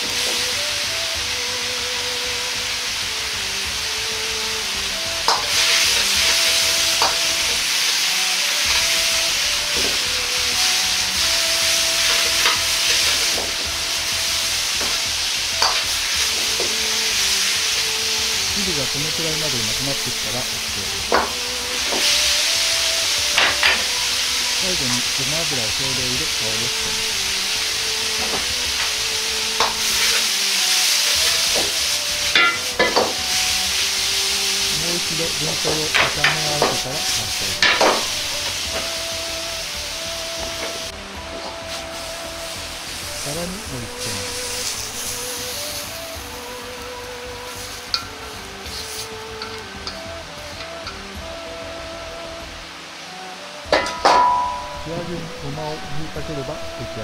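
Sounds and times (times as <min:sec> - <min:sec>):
vegetables sizzling in a wok: 0:00.0 - 0:57.0
metal ladle clinking on wok: 0:53.8 - 0:54.8.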